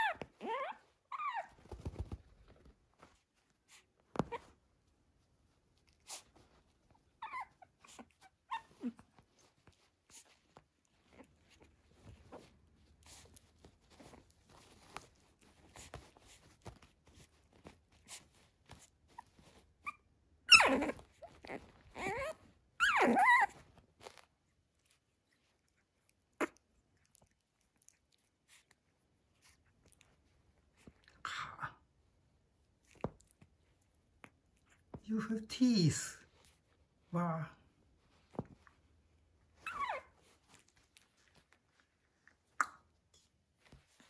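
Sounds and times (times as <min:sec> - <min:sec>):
puppy whining: 0:00.0 - 0:04.6, 0:05.8 - 0:31.9, 0:39.4 - 0:42.8.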